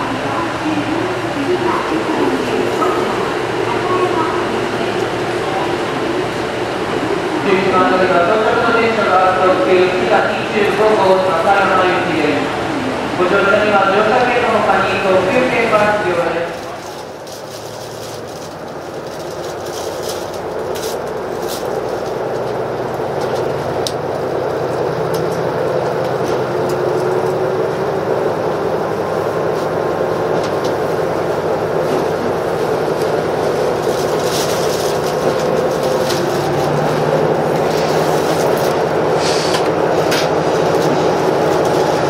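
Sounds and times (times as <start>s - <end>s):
diesel engine drone: 0.0s - 42.0s.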